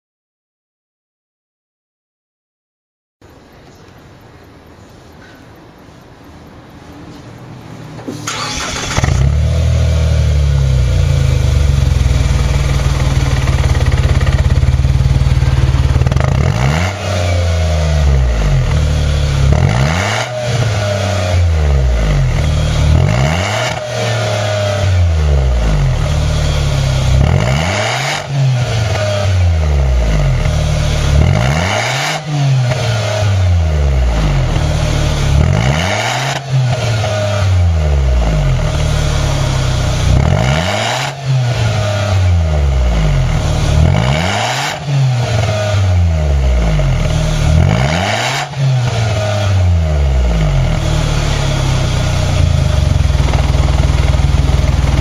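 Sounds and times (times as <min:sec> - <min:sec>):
car engine idling: 0:07.6 - 0:19.7, 0:20.5 - 0:27.6, 0:28.6 - 0:31.6, 0:32.6 - 0:35.6, 0:37.7 - 0:40.5, 0:41.6 - 0:44.2, 0:49.6 - 0:55.0
car engine starting: 0:08.0 - 0:55.0
car engine revving: 0:08.2 - 0:55.0.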